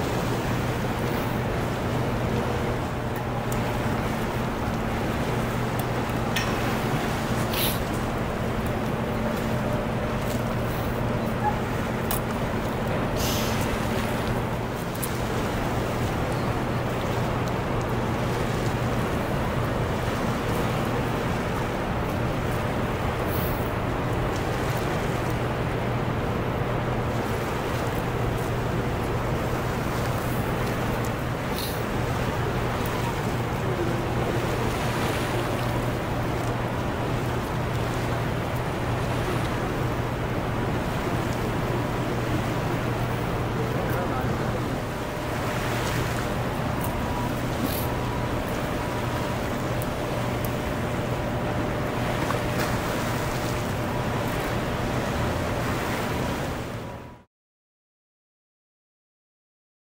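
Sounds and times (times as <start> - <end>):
low hum: 0.0 - 24.6
whitewater rushing: 0.0 - 25.2
river water rushing: 0.0 - 56.8
low steady hum: 0.0 - 57.2.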